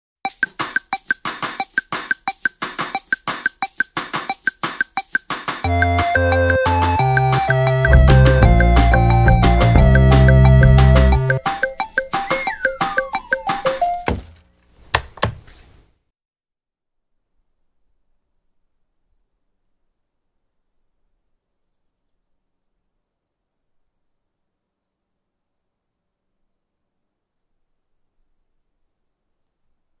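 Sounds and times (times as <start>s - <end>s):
playful animation music: 5.6s - 14.2s
heavy thumps: 13.8s - 15.8s
faint cricket chirping: 17.1s - 30.0s.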